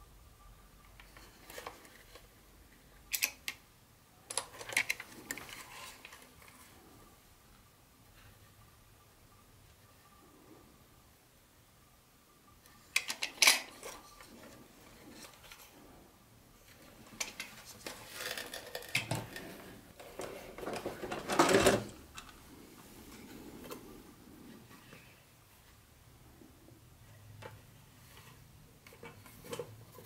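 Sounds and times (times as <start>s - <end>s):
plastic rubbing and rustling: 4.4s - 6.9s, 16.6s - 25.2s
plastic toy clatter: 17.1s - 22.0s.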